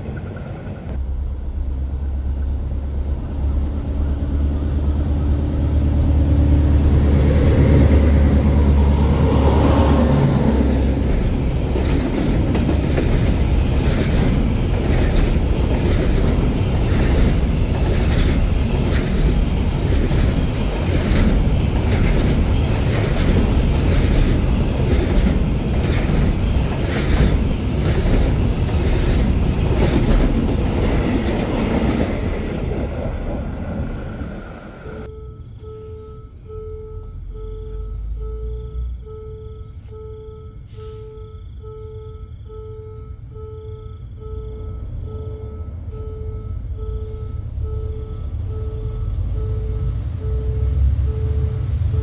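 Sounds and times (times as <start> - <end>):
freight train rumbling past: 0.0 - 35.1, 44.8 - 52.0
wheels clacking over rail joints: 9.4 - 35.1.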